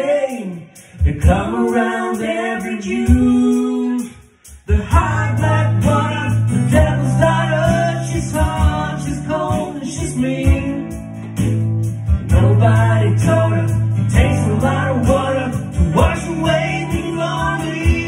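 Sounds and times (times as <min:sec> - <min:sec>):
person singing: 0:00.0 - 0:11.0, 0:12.3 - 0:18.0
keyboard: 0:00.0 - 0:18.0
strummed acoustic guitar: 0:04.9 - 0:18.0.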